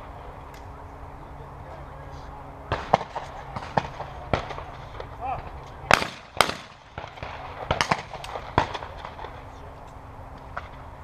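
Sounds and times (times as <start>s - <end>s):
shotgun shots: 2.7s - 5.0s, 5.9s - 9.4s.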